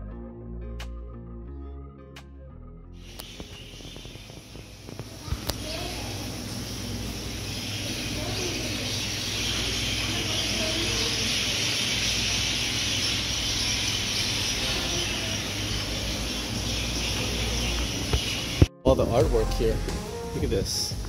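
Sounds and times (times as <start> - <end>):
flock of birds chirping: 3.0 - 18.7.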